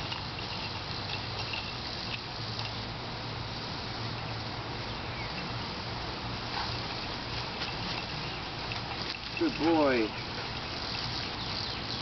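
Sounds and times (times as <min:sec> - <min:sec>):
outdoor background hiss: 0:00.0 - 0:12.0
dog paws running on wood chips: 0:06.5 - 0:12.0.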